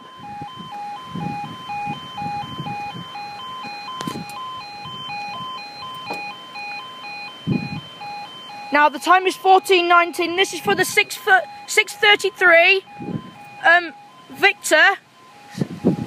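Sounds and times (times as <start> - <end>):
two-tone warbling alarm: 0.0 - 16.0.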